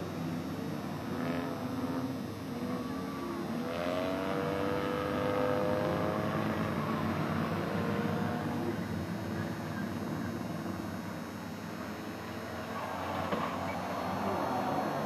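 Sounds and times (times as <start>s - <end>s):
distant race car engines revving: 0.0s - 15.0s.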